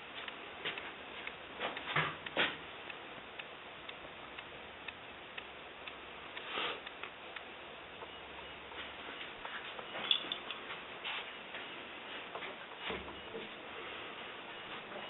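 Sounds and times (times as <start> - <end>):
steady hiss: 0.0 - 9.7
faint regular ticking: 0.1 - 10.9.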